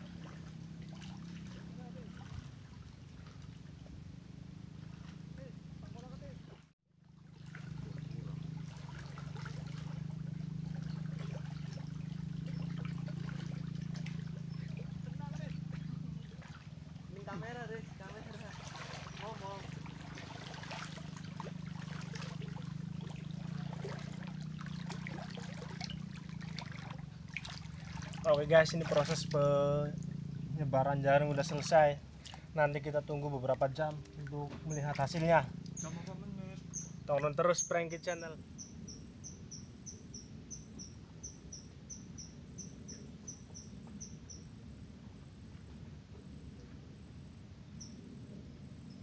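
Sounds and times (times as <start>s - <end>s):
water splashing as person wades: 0.0s - 4.1s, 4.7s - 5.6s, 6.4s - 30.6s, 31.2s - 32.6s
low steady rumble: 0.0s - 49.0s
steady low hum: 0.0s - 49.0s
insects chirping: 7.6s - 49.0s
thin insect trill: 34.6s - 49.0s.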